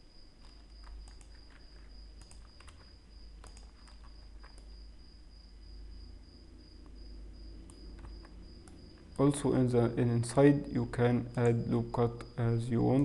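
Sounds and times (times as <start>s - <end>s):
mouse and keyboard clicks: 0.4s - 4.8s.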